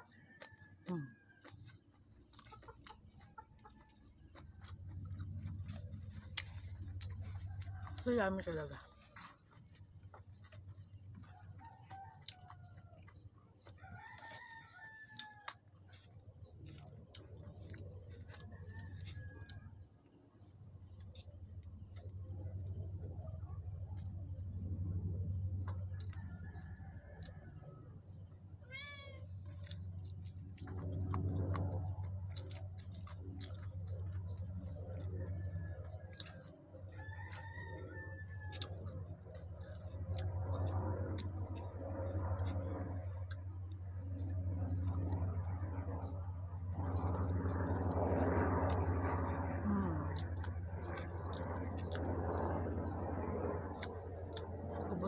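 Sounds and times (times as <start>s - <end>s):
close-up eating clicks and smacks: 0.0s - 55.0s
steady low hum: 0.0s - 55.0s
roosters crowing: 13.7s - 16.0s, 35.7s - 39.2s.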